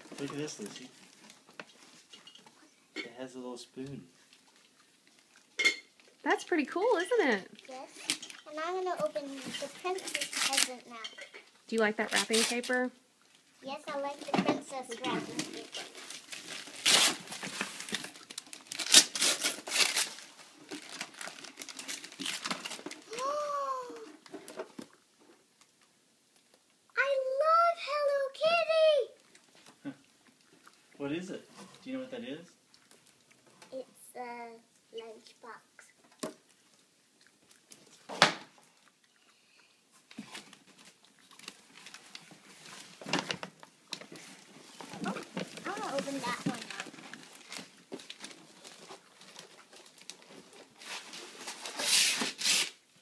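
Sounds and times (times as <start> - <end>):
wrapping paper tearing and crinkling: 7.9 - 11.1, 12.0 - 12.9, 15.0 - 24.3, 40.1 - 52.9.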